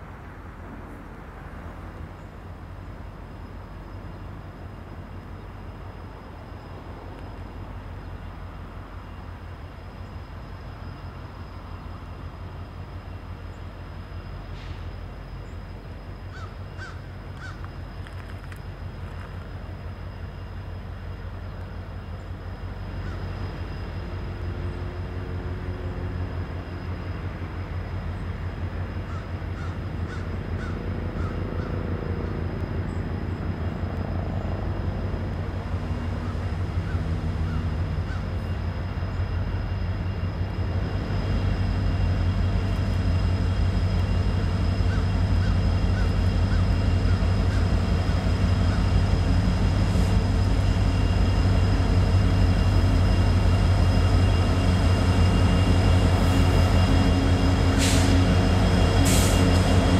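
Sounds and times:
diesel locomotive rumble: 0:00.0 - 0:59.9
crow cawing: 0:16.3 - 0:17.6, 0:29.1 - 0:31.8, 0:36.2 - 0:38.3.

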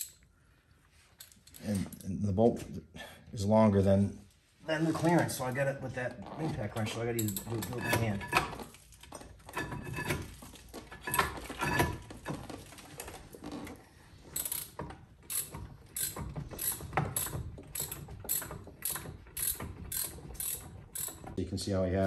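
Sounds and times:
ratchet wrench clicking: 0:14.4 - 0:21.3.

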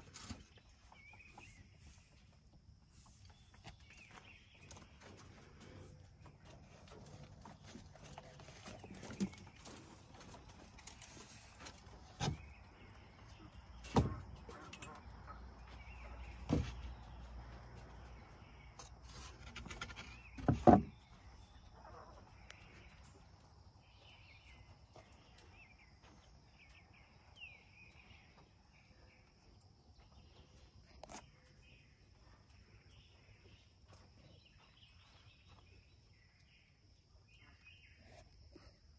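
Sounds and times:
quail chirping: 0:13.2 - 0:16.8, 0:21.7 - 0:22.8.

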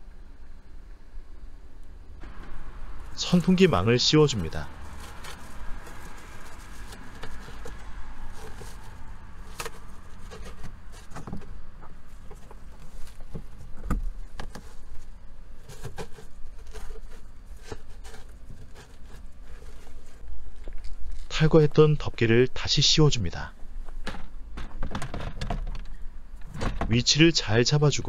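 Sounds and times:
low background rumble: 0:00.0 - 0:28.0
hands handling net clicks and rustles: 0:02.2 - 0:21.4.

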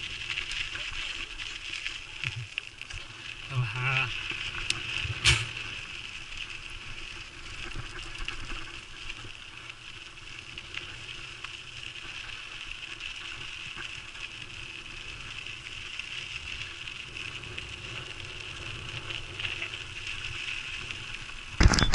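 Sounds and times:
bike tyres on gravel: 0:00.0 - 0:21.9
rattles and clicks: 0:21.6 - 0:21.9.

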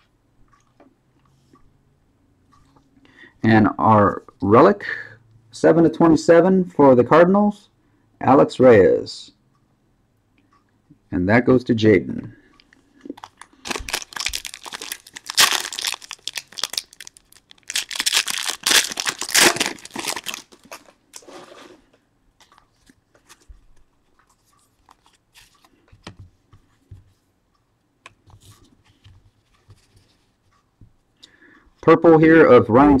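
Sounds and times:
wrapper crinkling and tearing: 0:13.2 - 0:21.3
faint clicks and rustles: 0:20.4 - 0:31.1.

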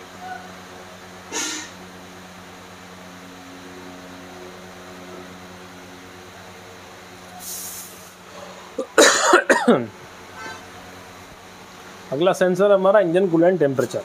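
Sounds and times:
steady low hum: 0:00.0 - 0:14.0
short high hiss: 0:01.3 - 0:01.8, 0:07.3 - 0:08.2
man coughing: 0:08.8 - 0:09.9.

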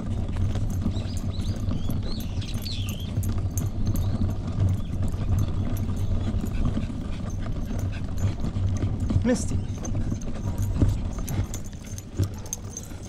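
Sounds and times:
bird chirps: 0:00.9 - 0:06.3.

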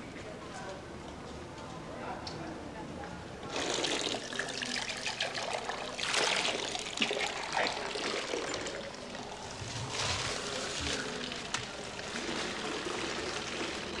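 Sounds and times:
water splashing into basin: 0:03.5 - 0:09.2
water trickling from spouts: 0:03.5 - 0:14.0.

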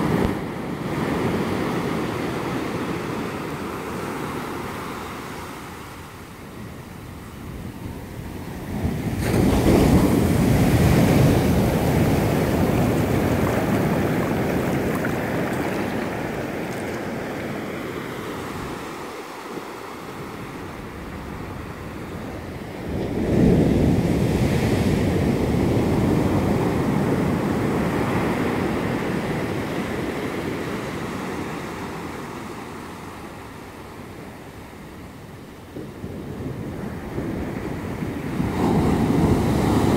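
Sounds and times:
waves breaking on sand: 0:00.0 - 0:39.9.

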